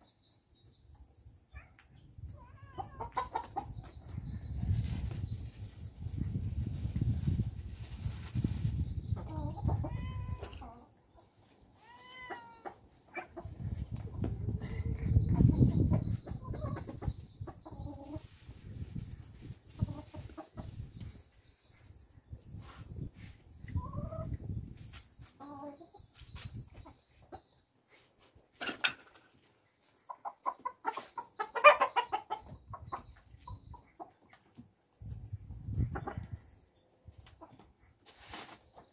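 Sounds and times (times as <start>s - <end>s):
chickens clucking: 1.8s - 38.9s
cat meowing: 2.4s - 3.0s, 9.8s - 10.6s, 11.8s - 12.8s.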